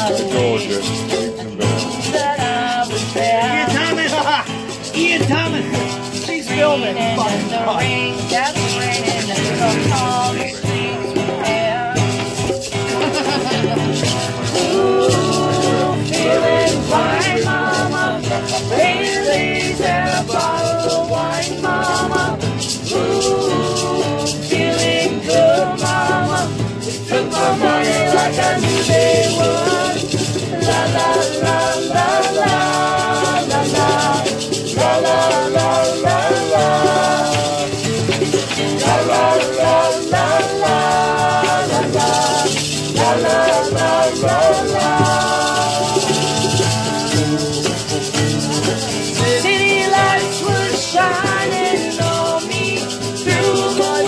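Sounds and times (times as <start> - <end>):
maracas shaking: 0.0 - 54.0
people singing along: 0.0 - 54.0.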